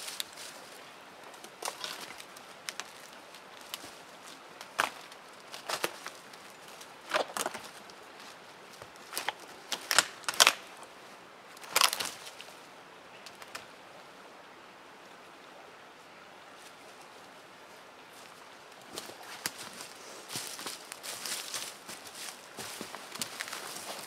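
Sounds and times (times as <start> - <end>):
twigs crackling and snapping: 1.3 - 10.8, 11.6 - 12.5, 13.2 - 13.7, 18.7 - 24.0.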